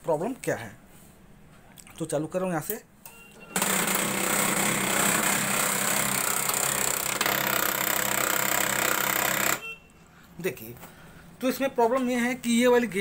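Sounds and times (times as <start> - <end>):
printer motor mechanical noise: 3.4 - 9.6.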